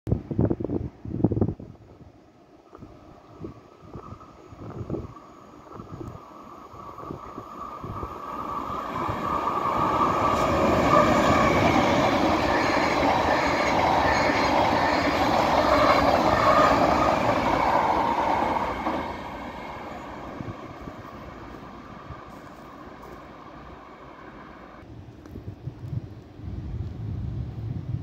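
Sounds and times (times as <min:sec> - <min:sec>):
train wheels rumbling on rails: 0:03.8 - 0:25.9.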